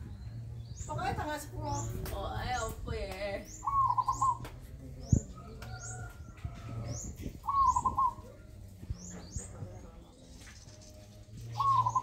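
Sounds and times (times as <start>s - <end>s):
bird high rising chirps: 3.4s - 4.4s
dove cooing: 3.6s - 4.4s, 6.8s - 8.6s, 11.5s - 12.0s.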